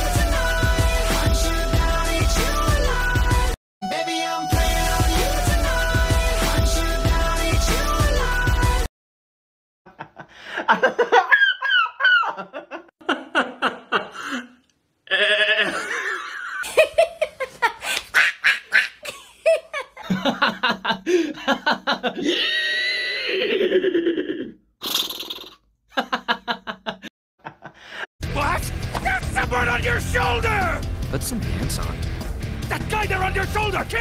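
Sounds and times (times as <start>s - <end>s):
man laughing hard: 9.9s - 24.5s, 25.9s - 27.8s.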